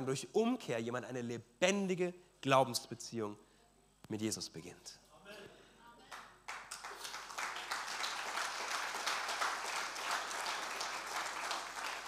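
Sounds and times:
congregation applauding: 0:06.1 - 0:12.0.

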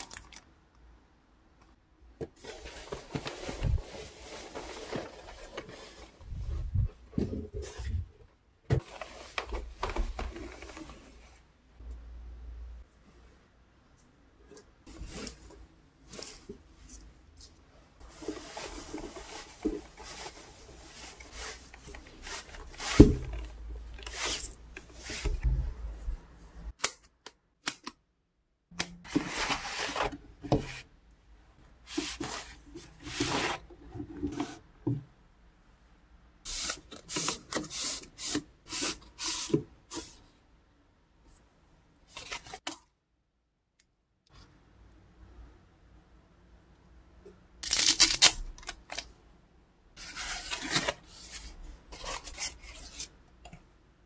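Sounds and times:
cloth bag and foam rustling: 0:02.4 - 0:06.9.

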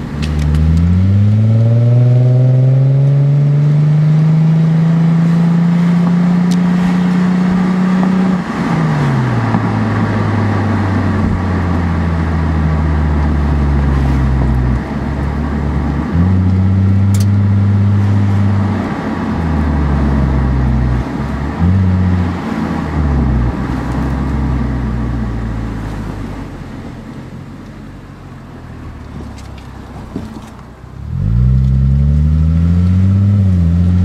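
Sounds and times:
car exhaust while driving: 0:00.0 - 0:34.0
wind noise: 0:06.0 - 0:17.3
tyre noise: 0:29.0 - 0:34.0.

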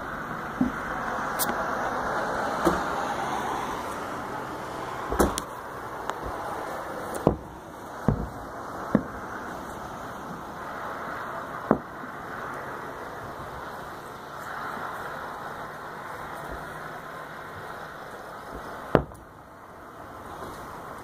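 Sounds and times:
background noise: 0:00.0 - 0:21.0
distant fireworks bangs: 0:05.0 - 0:12.4, 0:13.2 - 0:19.5.

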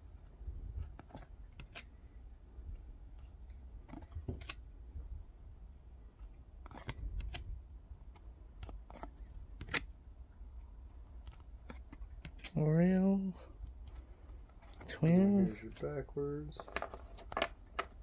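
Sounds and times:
cards sliding and snapping: 0:00.8 - 0:02.0, 0:03.2 - 0:04.6, 0:06.6 - 0:10.0, 0:11.2 - 0:12.6.

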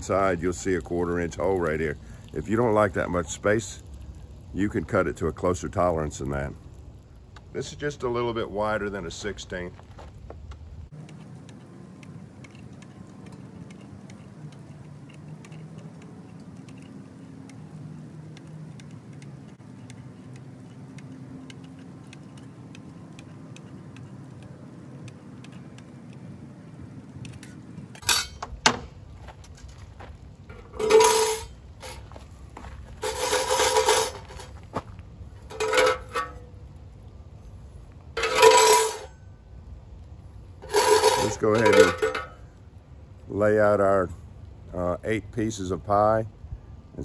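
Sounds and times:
metallic clanks and scrapes: 0:27.3 - 0:29.9, 0:30.5 - 0:32.2, 0:32.9 - 0:34.7, 0:35.4 - 0:36.6, 0:38.1 - 0:39.2, 0:40.6 - 0:42.5.

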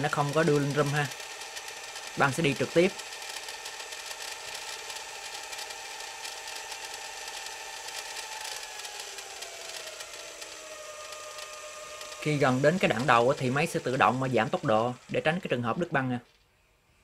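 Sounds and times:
tape deck rewinding whine: 0:00.0 - 0:16.5.

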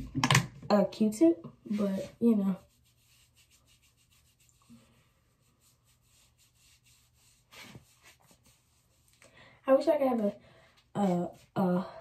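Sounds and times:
cotton pad rubbing on face: 0:01.7 - 0:09.2.

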